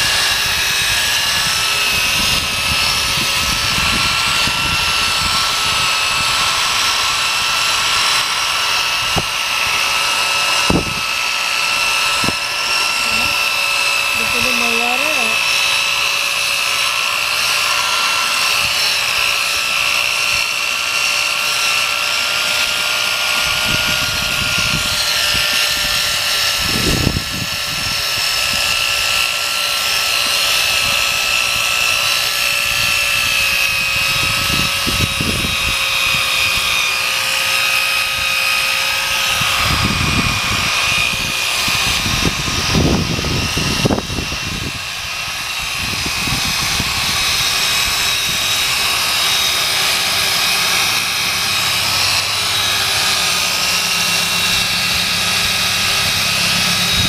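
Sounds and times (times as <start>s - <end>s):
electric drill whining: 0.0s - 57.0s
sanding pad scrubbing plastic: 11.8s - 16.0s.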